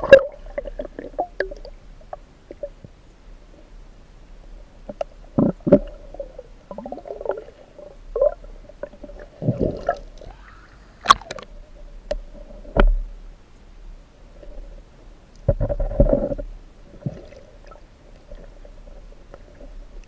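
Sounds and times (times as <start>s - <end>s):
gurgling water: 0.0s - 2.9s, 4.6s - 12.9s, 15.4s - 20.0s
faint steady hum: 0.0s - 20.0s
muffled underwater knocks and bumps: 15.4s - 17.3s.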